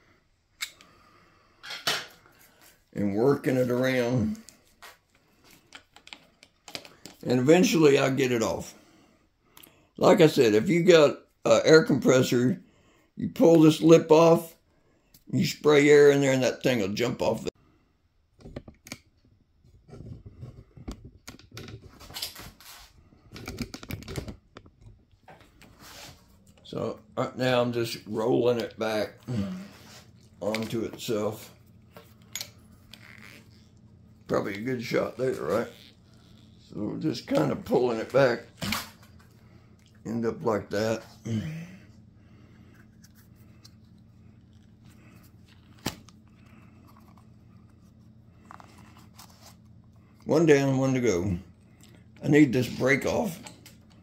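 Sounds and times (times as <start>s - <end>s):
low steady hum: 18.7s - 54.0s.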